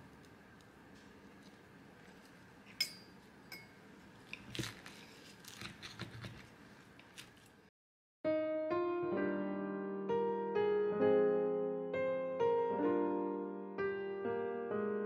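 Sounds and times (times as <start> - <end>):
knife crunching through pancake: 4.3 - 6.5.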